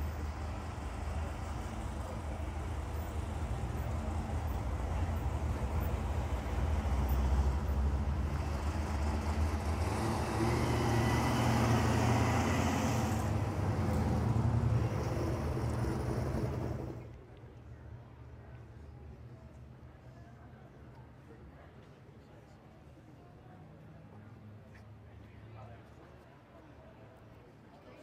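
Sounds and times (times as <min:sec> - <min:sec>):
car engine rumbling: 0:00.0 - 0:17.1.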